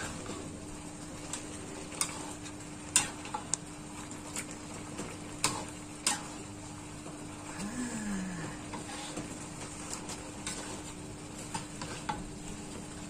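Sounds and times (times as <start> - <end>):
spatula scraping pan: 0.0 - 0.6, 1.8 - 3.5, 5.4 - 6.5, 8.7 - 12.4
steady low hum: 0.0 - 13.0
spatula stirring fish in wok: 1.3 - 3.5, 8.7 - 12.9.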